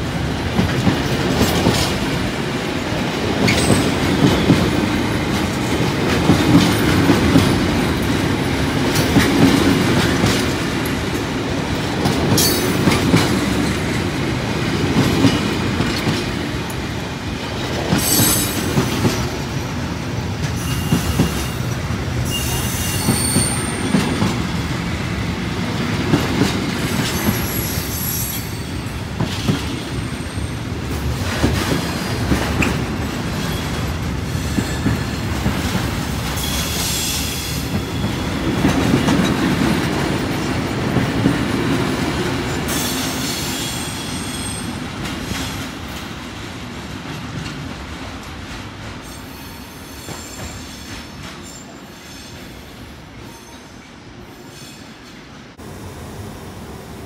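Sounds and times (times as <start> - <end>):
train wagons rumbling: 0.0 - 52.6
high-pitched wheel squeals: 20.6 - 21.6, 22.2 - 23.9.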